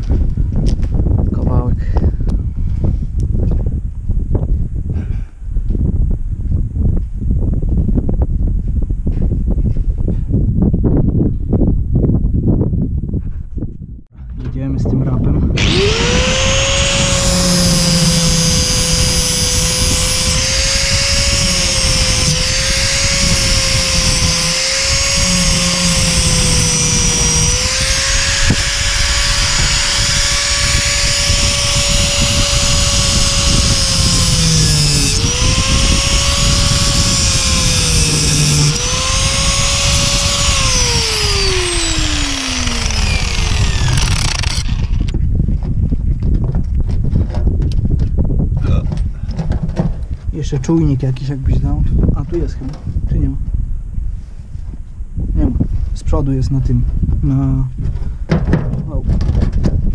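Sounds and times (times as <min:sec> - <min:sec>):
angle grinder cutting steel: 0:15.6 - 0:45.2.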